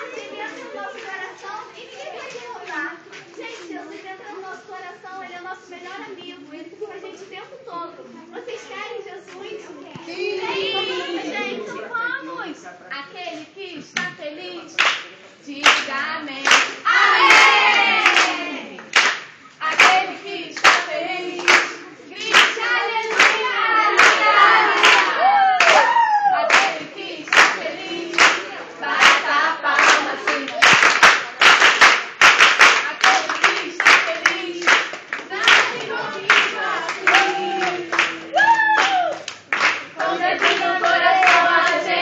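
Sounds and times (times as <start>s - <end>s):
hands clapping to a beat: 14.8s - 28.4s, 29.0s - 41.8s
group of people singing: 15.4s - 31.1s, 32.7s - 38.4s, 39.9s - 42.0s.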